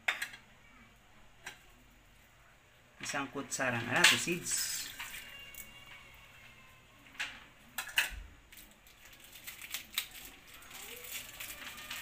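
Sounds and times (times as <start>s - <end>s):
kitchenware clicking and knocking: 3.8s - 4.4s.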